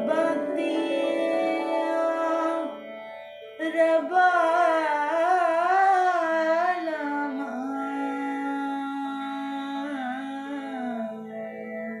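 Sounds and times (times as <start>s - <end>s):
woman singing: 0.0s - 2.8s, 3.6s - 11.4s
steady drone: 0.0s - 3.0s.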